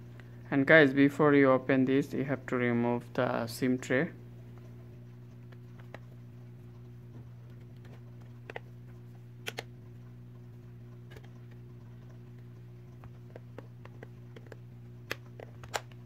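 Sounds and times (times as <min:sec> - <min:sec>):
steady low hum: 0:00.0 - 0:16.0
plastic clicks: 0:13.0 - 0:16.0.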